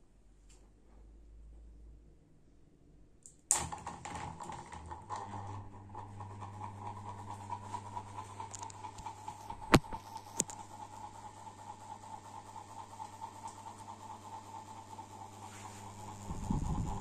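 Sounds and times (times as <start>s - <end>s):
fan motor humming and whirring: 3.5s - 17.0s.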